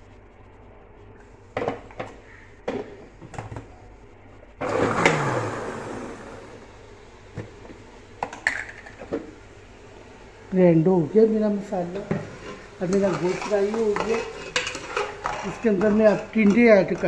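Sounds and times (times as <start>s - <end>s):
blender motor running: 4.6s - 6.7s.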